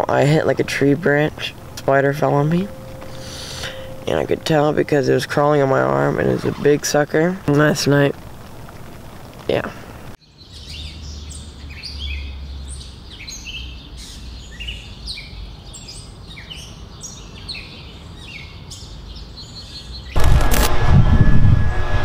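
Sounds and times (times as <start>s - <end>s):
birds chirping: 0.0s - 9.7s
low steady rumble: 0.0s - 10.2s, 20.2s - 22.0s
loud rush of noise: 20.2s - 22.0s.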